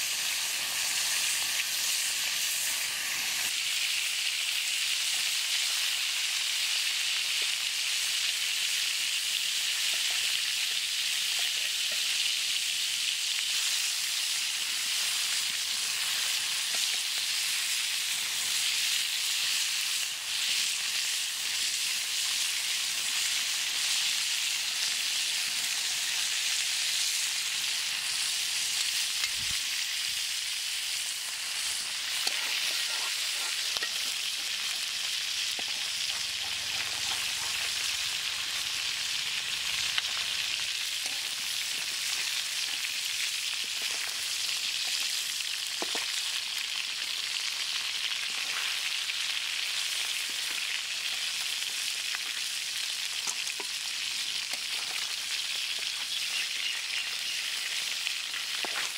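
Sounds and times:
fish sizzling in hot oil: 0.0 - 58.9
metal spatula scraping pan: 32.1 - 34.5.

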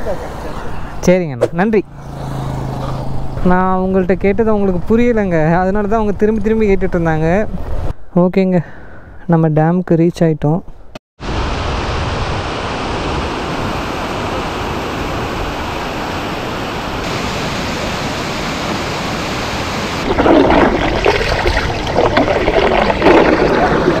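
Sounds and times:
water splashing and churning: 12.9 - 24.0
water rushing into rocky river: 17.0 - 24.0.

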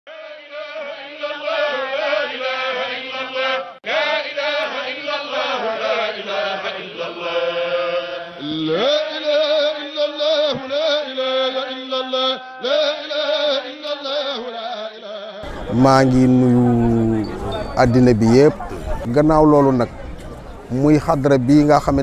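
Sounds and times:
voices chanting: 0.2 - 9.3, 15.4 - 20.8.

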